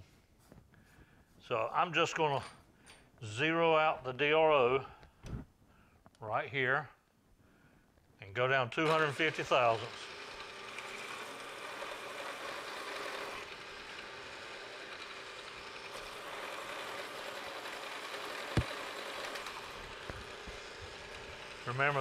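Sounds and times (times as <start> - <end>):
milling machine spindle running: 8.8 - 22.0.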